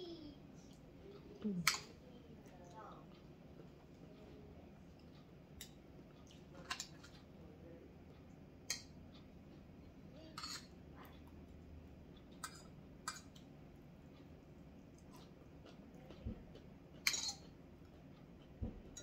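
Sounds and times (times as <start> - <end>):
faint low hum: 0.0 - 19.0
utensils clinking on dishes: 10.4 - 10.7, 17.0 - 17.5.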